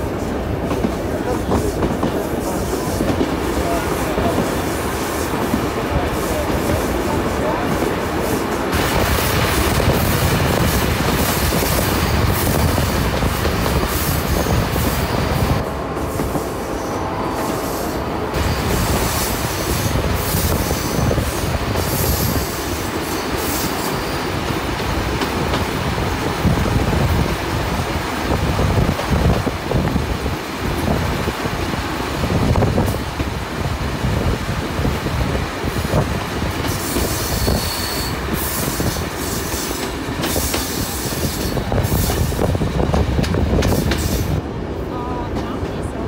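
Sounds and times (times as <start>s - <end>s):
train wheels rumbling on track: 0.0s - 46.0s
wheel flange squeals: 36.8s - 39.8s.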